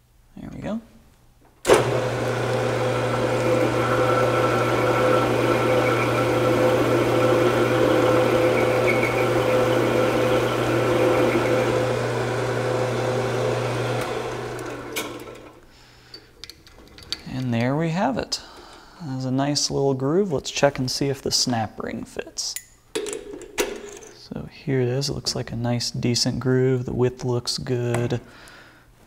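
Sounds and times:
metal lathe motor hum and whine: 1.7s - 15.4s.

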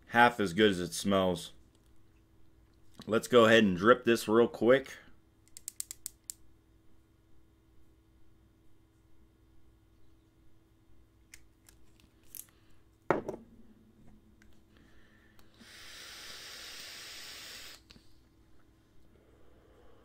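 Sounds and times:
small clicks: 5.4s - 6.4s
vaporizer coil hissing: 15.3s - 18.4s.

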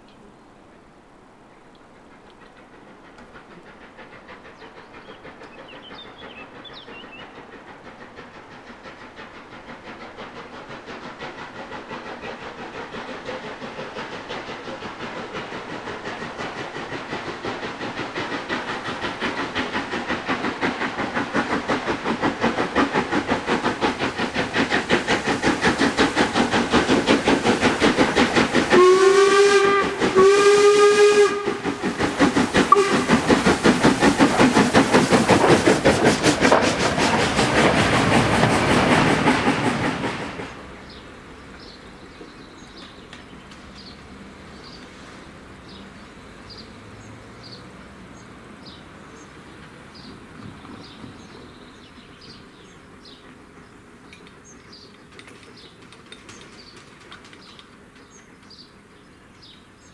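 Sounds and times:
steam locomotive exhaust beats: 1.2s - 59.9s
steam whistle blasts: 28.8s - 31.7s, 32.7s - 33.2s.

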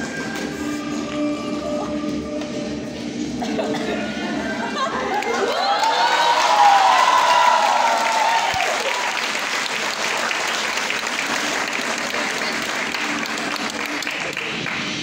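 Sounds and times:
cheering and whoops: 5.0s - 9.4s
audience applauding: 5.1s - 15.0s.

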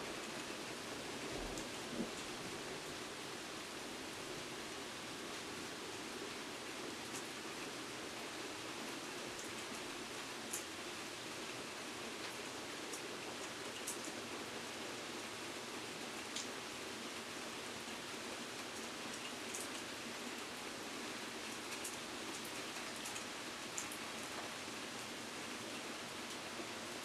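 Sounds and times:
steady rain hiss: 0.0s - 27.0s
raindrops ticking close by: 21.4s - 25.2s.

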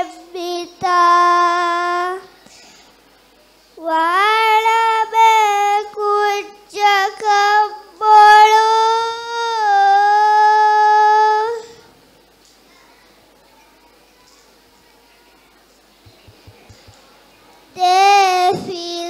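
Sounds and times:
girl chanting unaccompanied: 0.0s - 2.3s, 3.8s - 11.8s, 17.8s - 19.0s.

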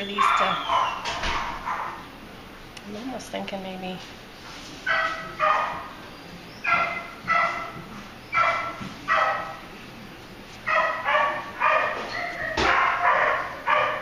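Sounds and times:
dog barking: 0.2s - 2.0s, 4.9s - 5.9s, 6.7s - 9.6s, 10.7s - 14.0s.

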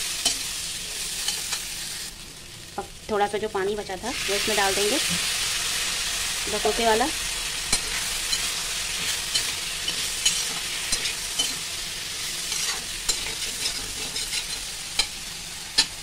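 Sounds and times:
food sizzling in oil: 0.0s - 16.0s
spatula scraping a pan: 7.7s - 16.0s.

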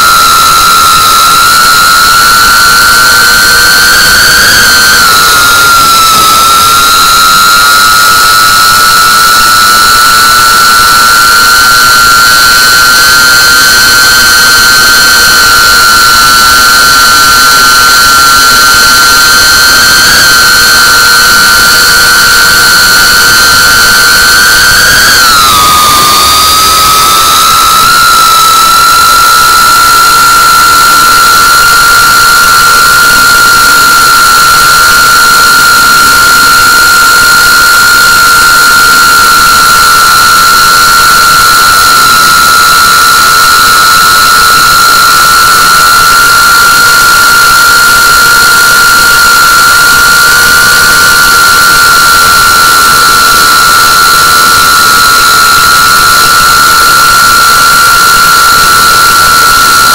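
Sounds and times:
drone motors whining: 20.6s - 32.4s.

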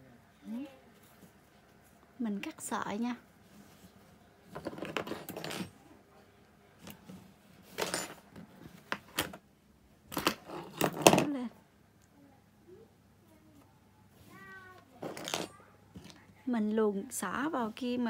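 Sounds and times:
tools clinking on wooden tabletop: 4.6s - 5.7s, 15.0s - 16.2s.

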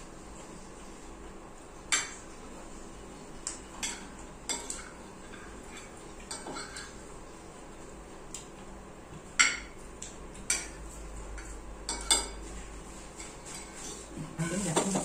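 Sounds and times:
cutlery clinking against plates: 3.4s - 7.0s, 9.4s - 12.6s.

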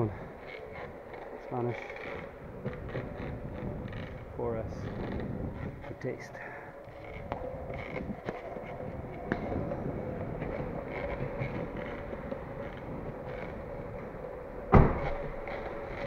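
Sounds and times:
longboard wheels rolling on concrete: 0.0s - 16.0s
loud thump: 14.7s - 15.1s.

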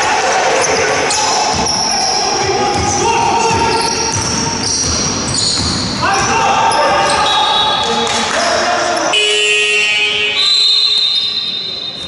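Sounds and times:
players calling out: 0.0s - 12.0s
shoes squeaking: 1.0s - 9.2s
basketball bouncing on wooden floor: 2.7s - 6.3s.

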